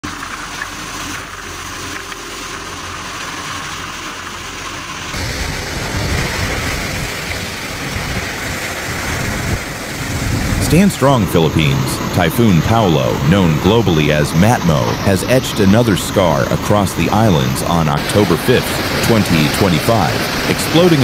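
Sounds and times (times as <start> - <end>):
heavy wind-driven rain: 5.1 - 21.0
strong wind: 5.1 - 21.0.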